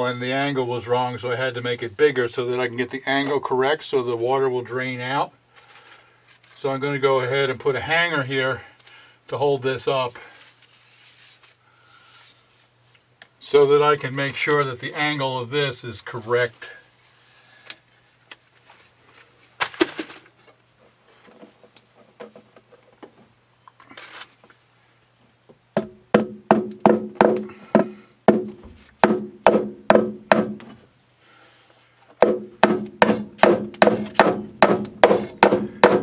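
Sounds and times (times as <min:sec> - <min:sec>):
hammer driving nail into wood: 0:25.8 - 0:30.7, 0:32.2 - 0:36.0.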